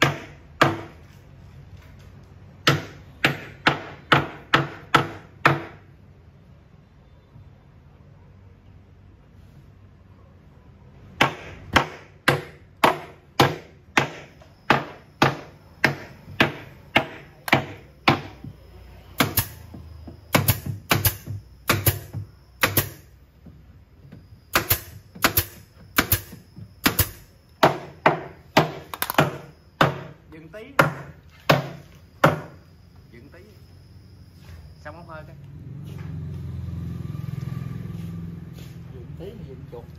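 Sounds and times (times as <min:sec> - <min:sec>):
nail gun firing into wood: 0:19.2 - 0:19.6, 0:20.3 - 0:23.1, 0:24.5 - 0:30.1.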